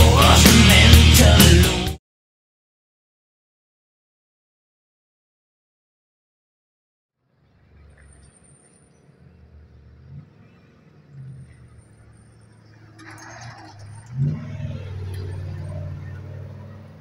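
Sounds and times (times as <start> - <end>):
truck engine passing: 7.2 - 17.0.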